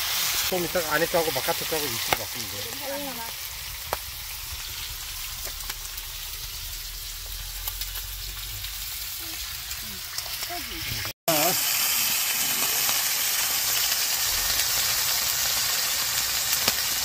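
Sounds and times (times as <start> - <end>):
pork sizzling on a griddle: 0.0 - 17.0
small pops of frying fat: 1.0 - 8.8, 11.8 - 17.0.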